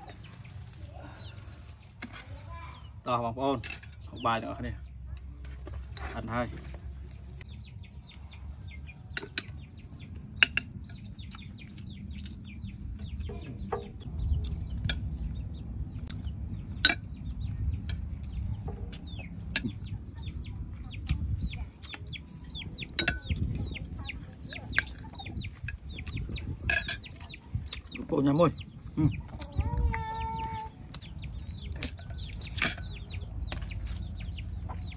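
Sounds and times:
chickens clucking: 0.0 - 34.9
cutlery clinking on a plate: 9.1 - 9.6, 23.0 - 23.4, 26.7 - 27.0, 31.8 - 33.7.

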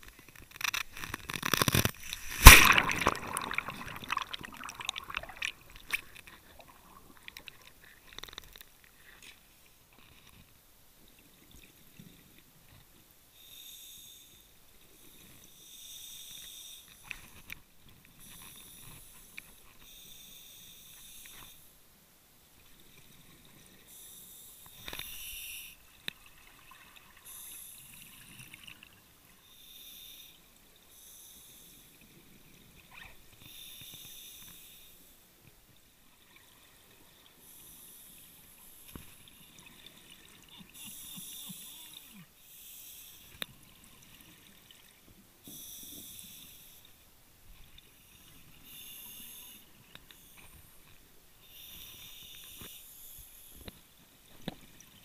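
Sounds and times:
bubbly hiss of exhaled air: 2.0 - 5.8.

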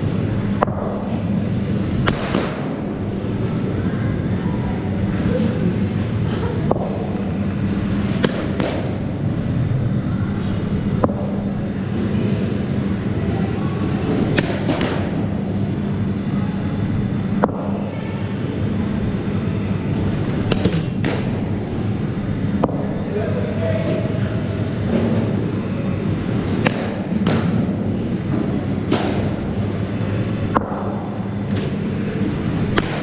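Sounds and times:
steady low hum: 0.0 - 33.0
cricket bats striking balls: 1.9 - 2.9, 6.7 - 9.2, 11.0 - 11.5, 14.0 - 15.5, 17.4 - 17.8, 20.3 - 23.1, 26.2 - 33.0.

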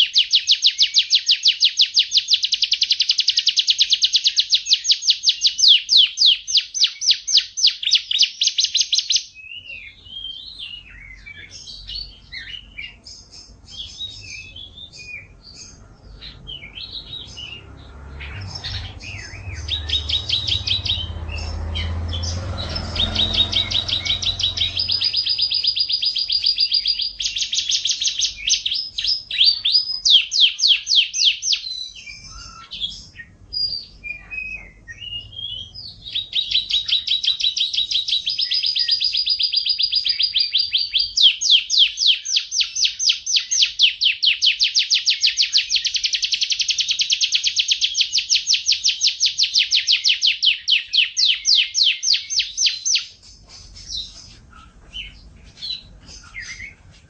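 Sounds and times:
canary singing trills: 0.0 - 57.0.

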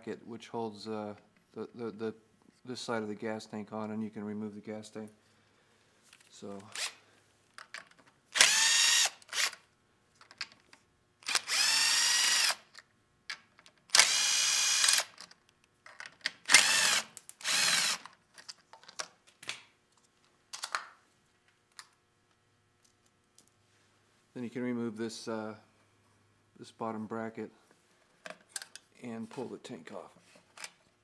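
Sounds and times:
cordless drill whine: 8.4 - 9.6, 11.2 - 12.7, 14.0 - 15.2, 16.5 - 18.1.

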